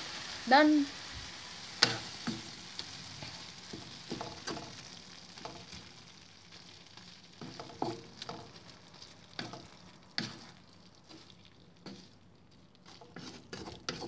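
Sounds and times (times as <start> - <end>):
shrimp sizzling in a frying pan: 0.0 - 14.0
spatula scraping a pan: 1.8 - 4.8, 7.4 - 12.2, 12.8 - 14.0
spatula knocking on pan: 3.7 - 4.8.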